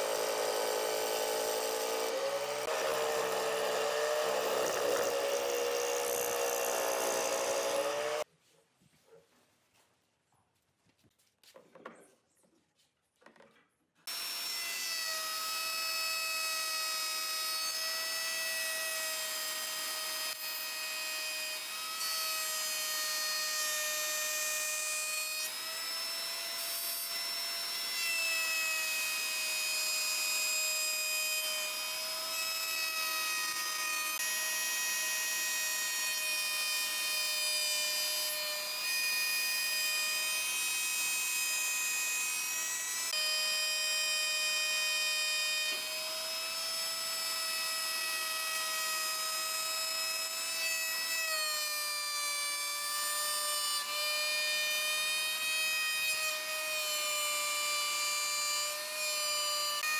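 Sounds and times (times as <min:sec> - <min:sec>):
wood router cutting: 0:00.0 - 0:08.3, 0:14.1 - 0:59.9.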